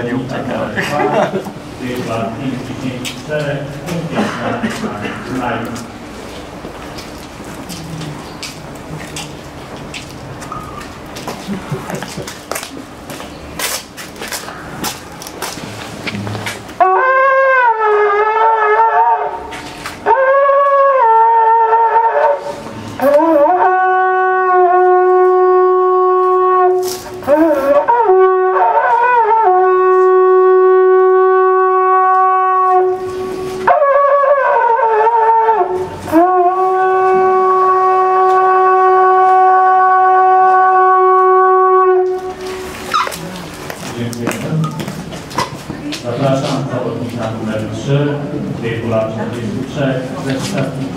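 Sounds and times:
shepherd's horn calls: 16.7s - 43.2s.

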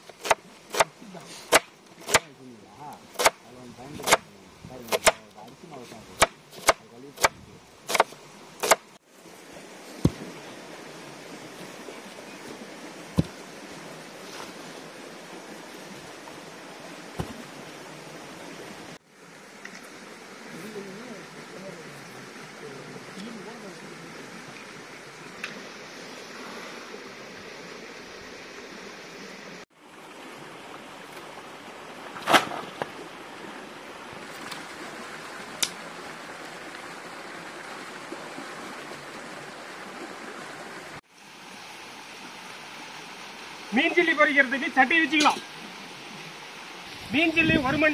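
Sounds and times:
outdoor hiss: 0.0s - 47.9s
stream rushing: 0.0s - 47.9s
stone block knocking on dirt: 13.1s - 13.4s, 17.2s - 17.4s.

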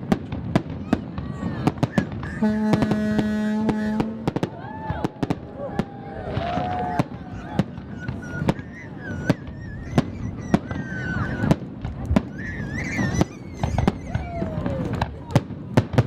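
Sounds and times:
firework shells bursting: 0.0s - 16.0s.

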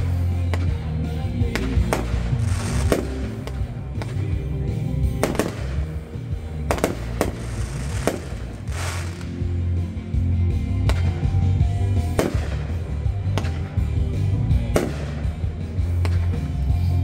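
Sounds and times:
music playing: 0.0s - 17.0s
fireworks crackling: 1.4s - 4.5s, 5.1s - 9.6s, 12.0s - 13.8s
fireworks bangs: 1.5s - 4.2s, 5.2s - 6.0s, 6.6s - 9.4s, 12.1s - 13.6s.

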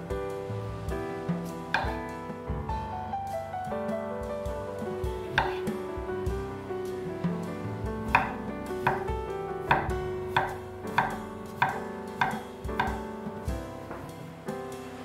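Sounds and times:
soft background music: 0.0s - 15.0s
knife chopping on wooden board: 1.7s - 2.1s, 5.3s - 5.8s, 8.1s - 9.1s, 9.7s - 13.0s.

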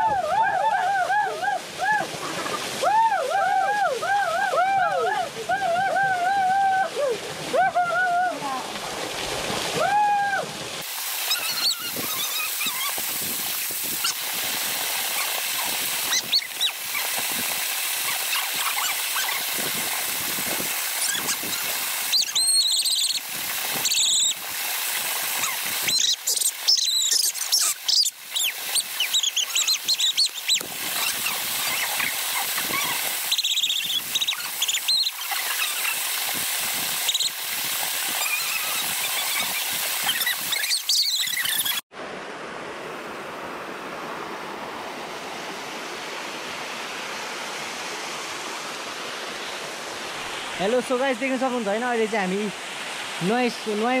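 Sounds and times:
waterfall rushing: 0.0s - 54.0s
short high squeals: 11.3s - 13.0s, 25.4s - 36.0s, 38.2s - 41.8s.

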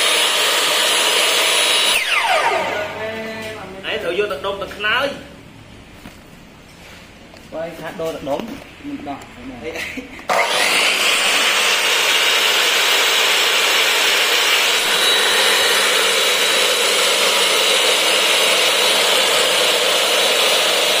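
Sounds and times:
saw motor whining: 0.0s - 3.2s, 10.3s - 21.0s.

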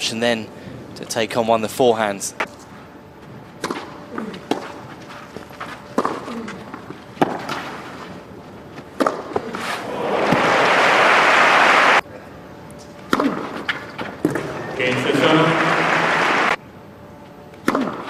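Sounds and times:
crowd applause: 9.8s - 12.0s, 14.8s - 16.6s.

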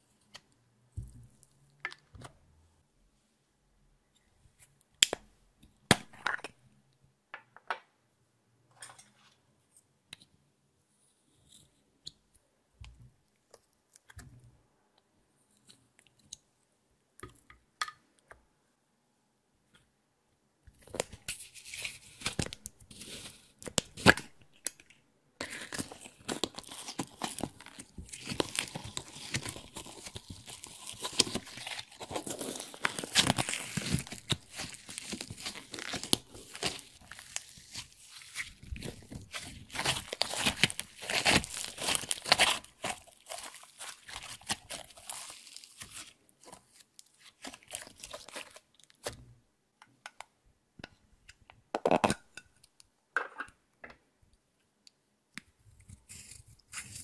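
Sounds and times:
slime squishing and crackling: 25.4s - 49.2s.

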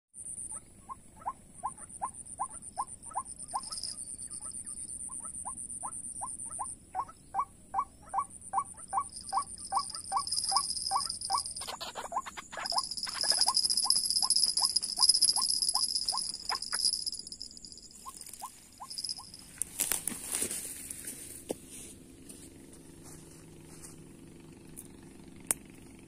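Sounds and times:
bird calls rapid rising notes: 1.2s - 19.4s.

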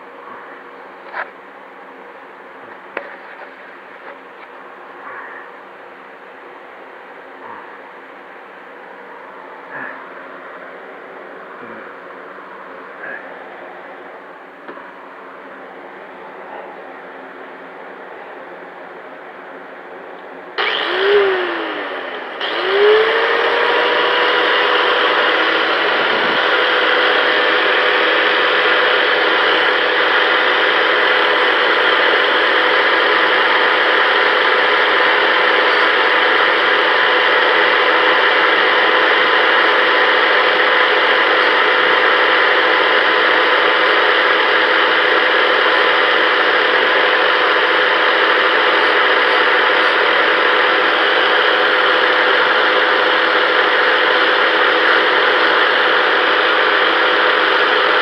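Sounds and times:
angle grinder whining: 20.6s - 58.0s.

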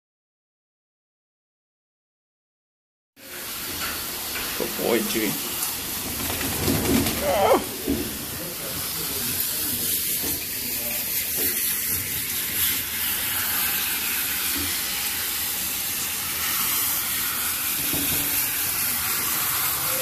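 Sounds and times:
water hissing from hose nozzle: 7.2s - 20.0s.

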